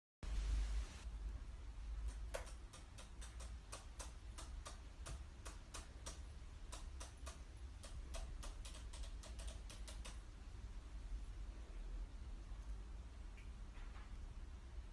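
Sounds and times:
beak clicking on keyboard keys: 0:02.0 - 0:10.2.

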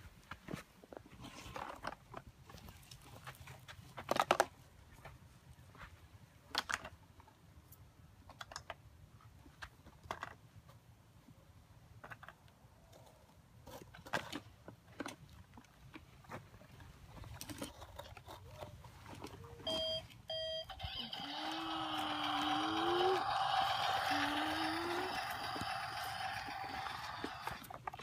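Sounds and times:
plastic toys clattering: 0:21.6 - 0:28.0.

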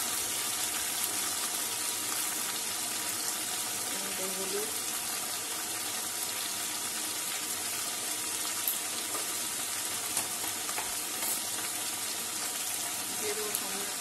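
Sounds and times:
food sizzling in hot oil: 0:00.0 - 0:14.0.

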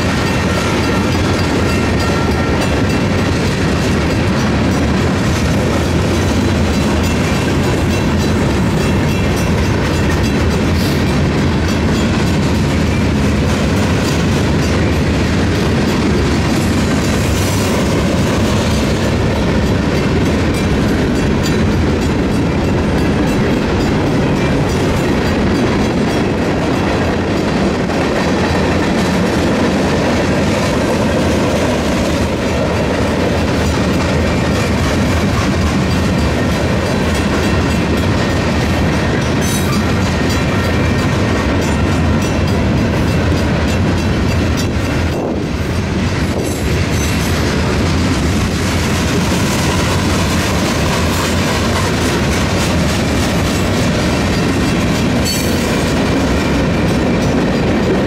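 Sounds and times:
freight train rolling past: 0:00.0 - 0:58.0.

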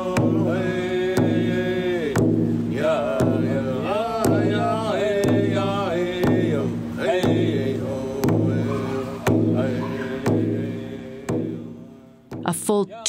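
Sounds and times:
steady drum beat: 0:00.0 - 0:13.0
person chanting: 0:02.8 - 0:11.8, 0:12.5 - 0:13.0.

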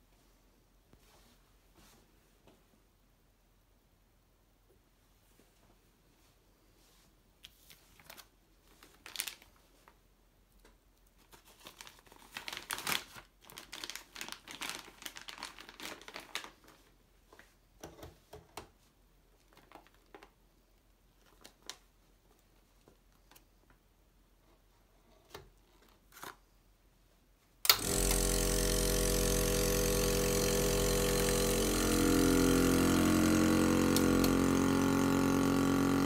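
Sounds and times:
plastic bag crinkling: 0:07.6 - 0:10.0, 0:11.2 - 0:16.9, 0:19.4 - 0:20.4.

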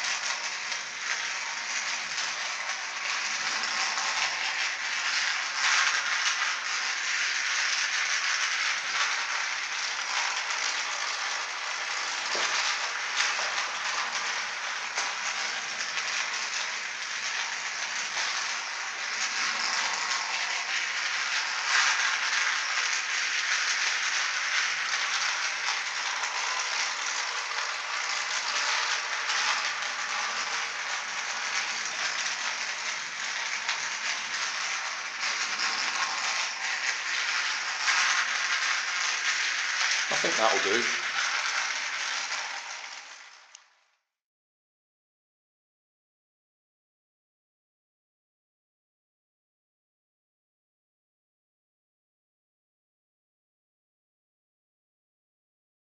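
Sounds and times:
toy train rattling on track: 0:00.0 - 0:44.1.

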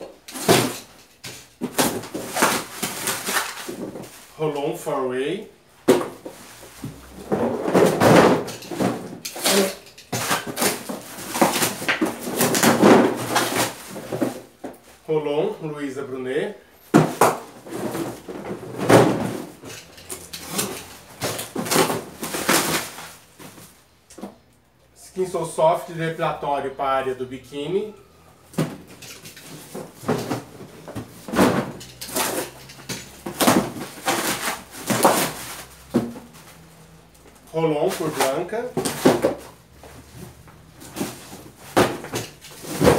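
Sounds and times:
cardboard and tape ripping: 0:01.6 - 0:04.2, 0:06.9 - 0:14.5, 0:18.8 - 0:23.8, 0:31.2 - 0:36.6
cardboard box set down: 0:28.6 - 0:36.6, 0:38.1 - 0:42.9.

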